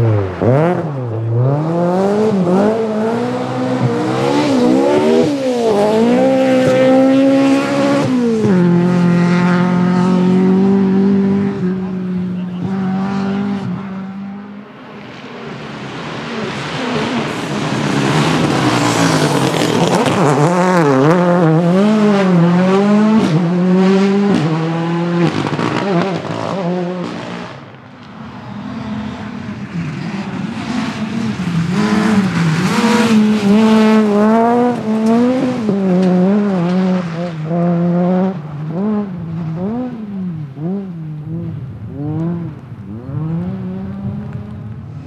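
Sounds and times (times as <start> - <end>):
rally car engines at full throttle: 0.0 - 45.0.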